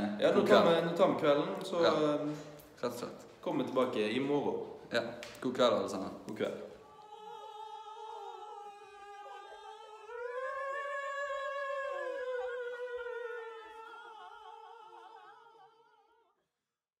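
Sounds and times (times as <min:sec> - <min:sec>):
group singing held note: 0:06.8 - 0:16.3.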